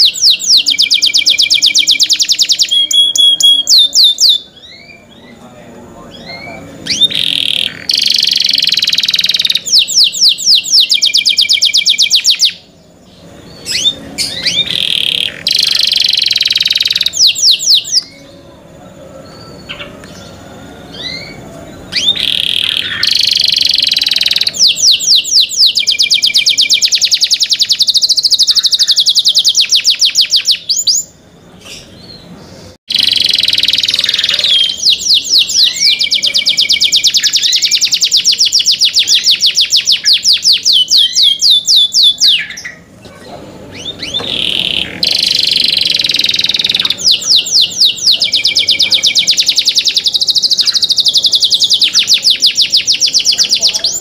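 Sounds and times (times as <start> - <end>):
canary singing trills: 0.0 - 54.0
soft canary chirps: 0.0 - 54.0.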